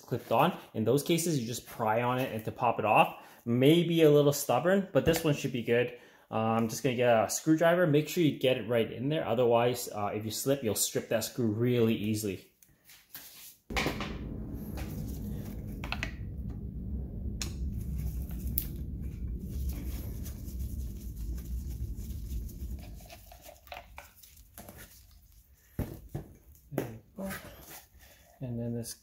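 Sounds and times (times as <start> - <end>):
steady low rumble: 13.7 - 24.2.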